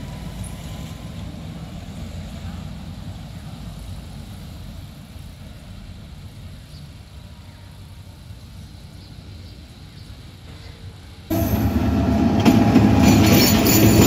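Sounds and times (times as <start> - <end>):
distant train rumbling: 10.2 - 14.0.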